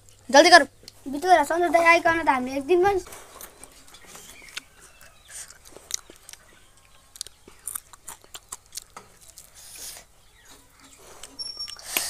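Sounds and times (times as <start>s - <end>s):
crunchy chewing: 3.1s - 12.0s.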